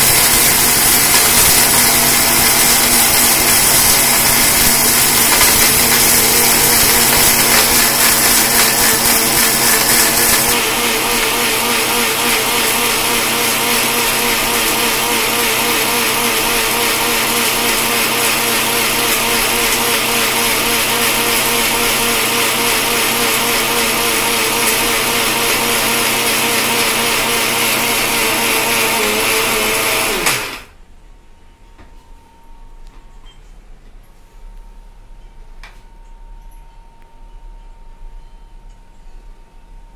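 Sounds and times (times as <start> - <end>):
mixer grinder motor running: 0.0 - 30.7.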